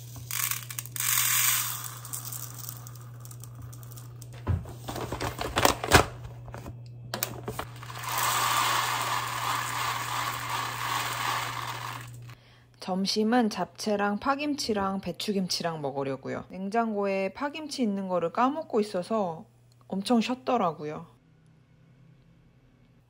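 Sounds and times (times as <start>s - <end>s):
rice pouring into plastic cup: 0.0s - 4.1s, 7.6s - 12.4s.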